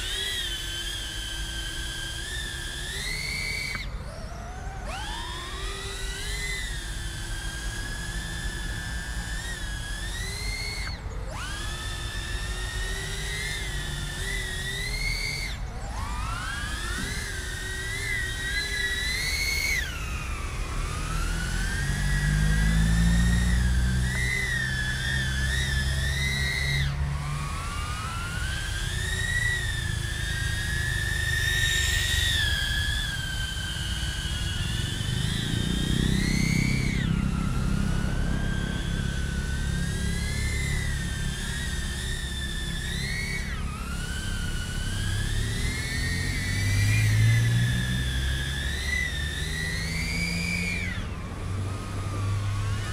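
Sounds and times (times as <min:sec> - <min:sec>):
drone propellers whining: 0:00.0 - 0:52.9
low wind rumble: 0:50.9 - 0:52.9.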